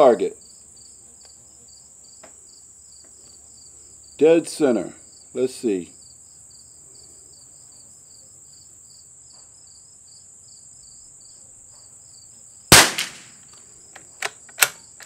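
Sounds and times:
insects chirping: 0.0 - 15.0
rifle bolt clicking: 12.7 - 13.3, 14.0 - 14.8
rifle shot: 12.7 - 13.4.

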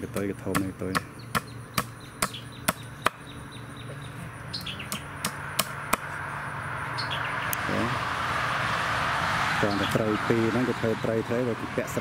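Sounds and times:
knife chopping on concrete: 0.0 - 3.2
birds chirping: 0.0 - 12.0
passing traffic rush: 3.5 - 12.0.

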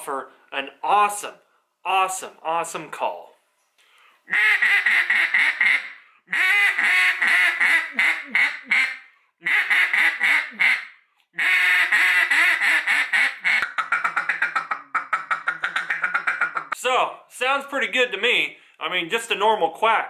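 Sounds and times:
duck call quacks: 4.3 - 16.8.

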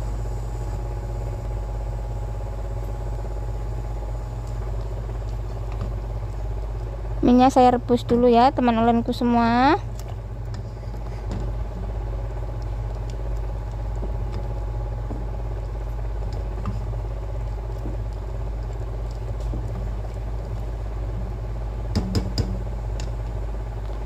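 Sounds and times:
steady low rumble: 0.0 - 24.0
water bubbling in a pot: 9.8 - 23.8
sharp knocks against a pot: 21.9 - 22.6.

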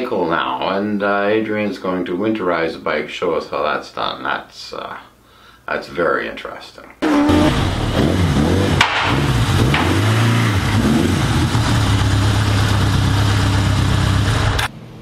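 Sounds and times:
motorcycle engine: 7.0 - 14.7.

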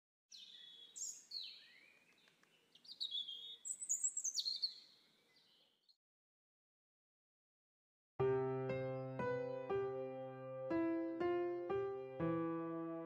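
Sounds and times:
songbird singing: 0.3 - 6.0.

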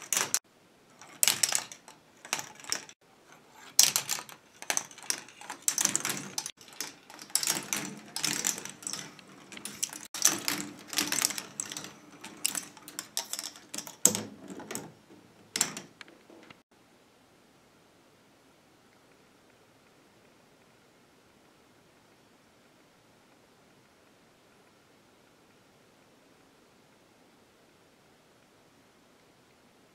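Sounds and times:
plastic balls clattering through tracks: 0.0 - 0.4, 1.0 - 16.6.

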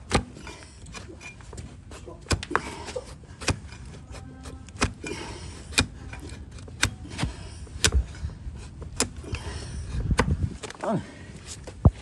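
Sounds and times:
knife cutting through hoof: 0.1 - 9.5.

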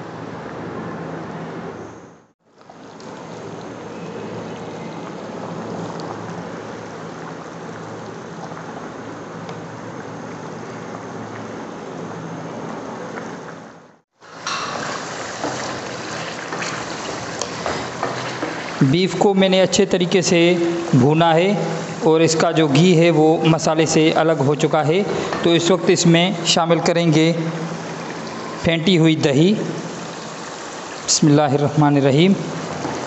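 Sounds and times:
curry boiling in a pot: 2.4 - 12.1, 14.2 - 33.0
masala frying with crackling sizzle: 2.5 - 11.6, 14.1 - 22.4, 29.7 - 31.2, 32.4 - 33.0.

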